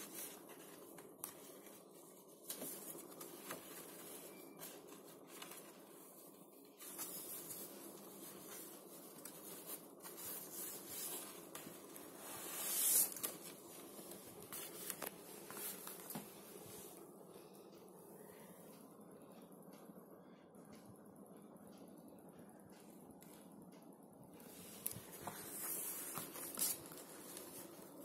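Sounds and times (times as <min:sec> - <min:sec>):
cardstock rustling and clicking: 0:00.0 - 0:06.1.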